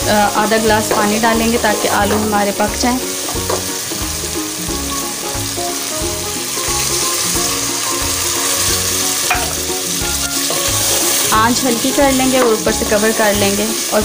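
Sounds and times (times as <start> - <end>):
potatoes sizzling in hot oil: 0.0 - 14.0
wooden spoon stirring: 0.2 - 3.9.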